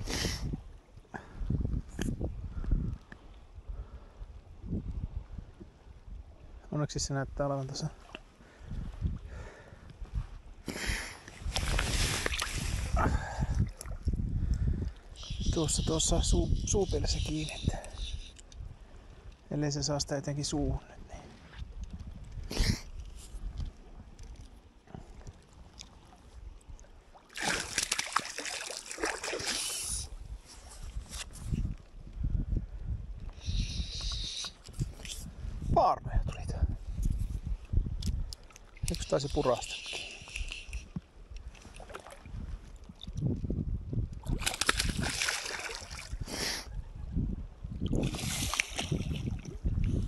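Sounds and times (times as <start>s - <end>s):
water splashing in shallows: 11.2s - 14.2s, 24.2s - 30.1s, 38.4s - 43.2s, 44.2s - 46.3s, 47.9s - 50.0s.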